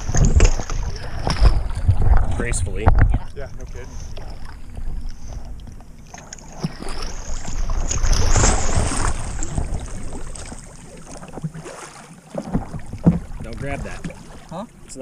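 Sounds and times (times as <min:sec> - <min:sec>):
water sloshing: 0:00.0 - 0:15.0
big splash into water: 0:06.5 - 0:14.5.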